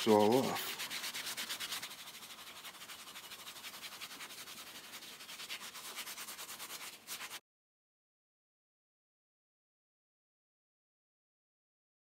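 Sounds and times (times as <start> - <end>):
cloth rubbing on steel: 0.0 - 7.4.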